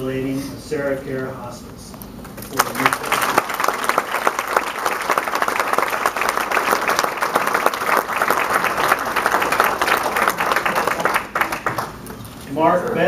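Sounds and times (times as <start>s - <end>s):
audience applauding: 2.4s - 12.2s.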